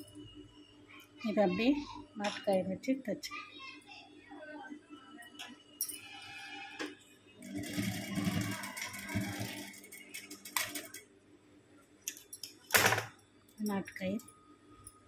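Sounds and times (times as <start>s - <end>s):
industrial sewing machine stitching: 7.4s - 10.9s.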